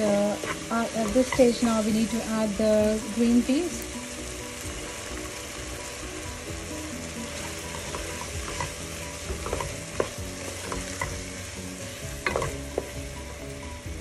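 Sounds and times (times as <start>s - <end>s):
wooden spoon scraping a pan: 0.0s - 2.3s, 7.2s - 13.2s
peas sizzling in a pot: 0.0s - 14.0s.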